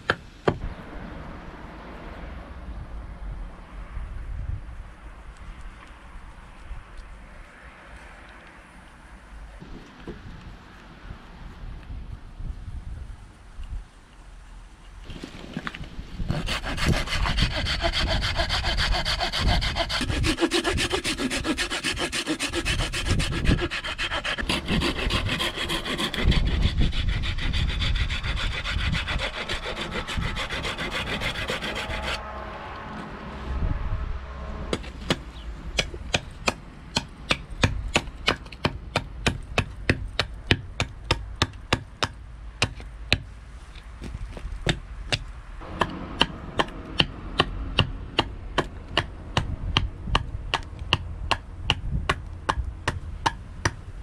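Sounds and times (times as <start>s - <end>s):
handsaw sawing wood: 16.3s - 32.2s.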